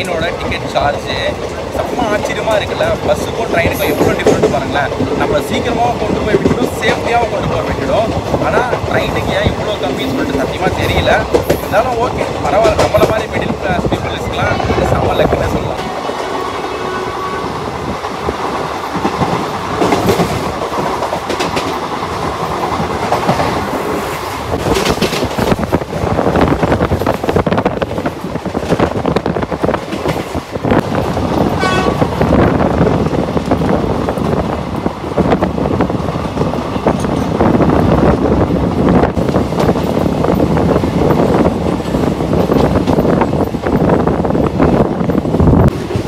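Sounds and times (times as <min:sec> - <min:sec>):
train wheels clacking over rail joints: 0:00.0 - 0:14.1, 0:18.0 - 0:34.6
train coach rattling: 0:00.0 - 0:46.0
wind rushing: 0:00.3 - 0:46.0.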